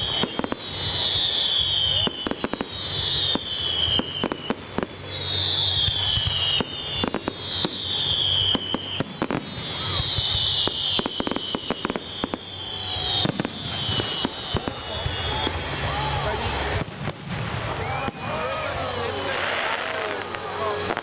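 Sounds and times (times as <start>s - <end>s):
high falling whistle: 0.0s - 16.8s
fireworks bangs and crackles: 0.0s - 21.0s.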